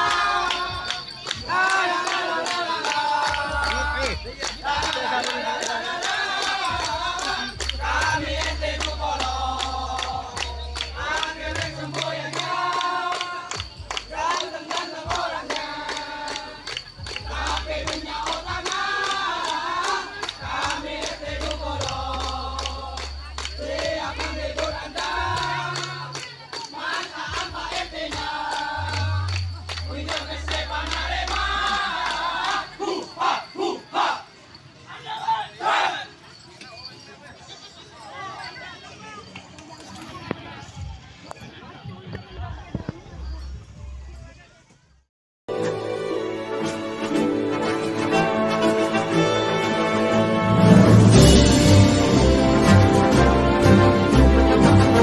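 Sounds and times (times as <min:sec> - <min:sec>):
sharp claps: 0:00.0 - 0:32.6
group of voices singing: 0:00.0 - 0:34.4.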